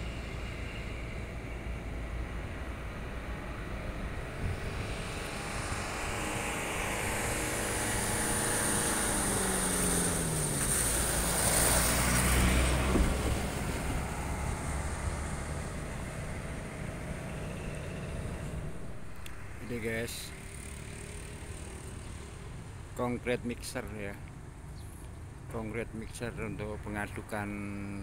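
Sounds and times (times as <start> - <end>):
motor vehicle passing by: 0.0 - 23.0
steady low rumble: 12.8 - 20.5.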